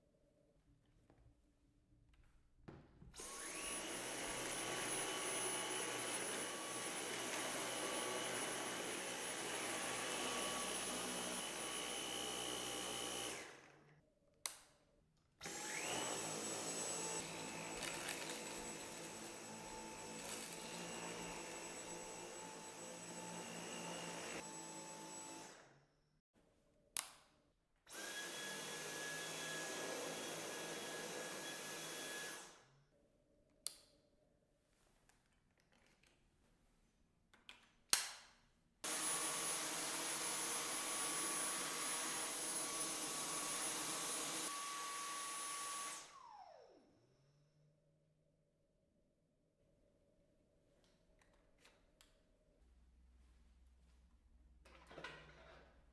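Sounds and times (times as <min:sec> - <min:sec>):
vacuum cleaner motor whining: 0:03.2 - 0:13.8, 0:15.4 - 0:25.7, 0:27.9 - 0:32.6, 0:38.9 - 0:46.9.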